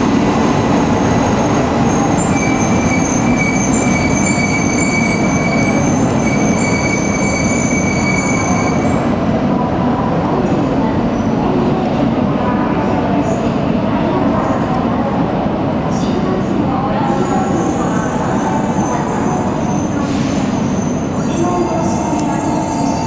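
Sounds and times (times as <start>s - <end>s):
brake and wheel squeal: 2.2s - 9.0s.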